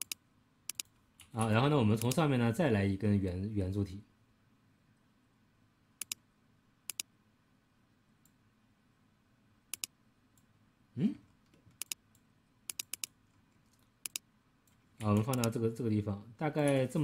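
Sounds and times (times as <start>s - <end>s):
computer mouse clicks: 0.0s - 2.2s, 6.0s - 6.2s, 6.9s - 7.1s, 9.7s - 10.5s, 11.4s - 15.6s.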